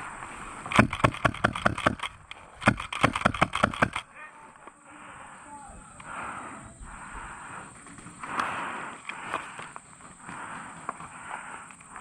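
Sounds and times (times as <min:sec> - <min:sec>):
rapid airsoft gunshots: 0:00.7 - 0:04.1.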